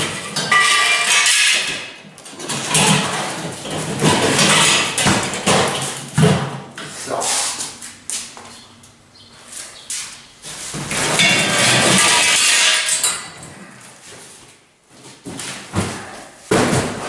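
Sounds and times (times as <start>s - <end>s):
metal parts clattering on concrete: 0.0s - 6.2s, 11.0s - 13.6s.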